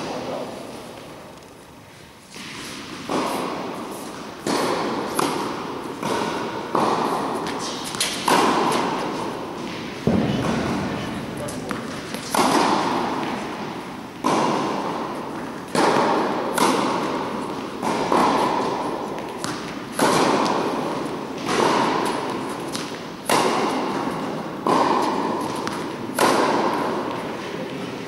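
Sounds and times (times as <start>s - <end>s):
tennis ball pock echoing: 4.4s - 28.0s.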